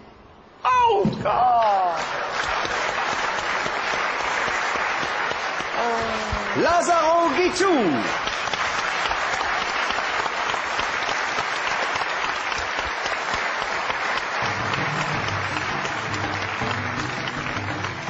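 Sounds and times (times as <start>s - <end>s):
audience applauding: 1.5s - 18.0s
low music: 14.4s - 18.0s.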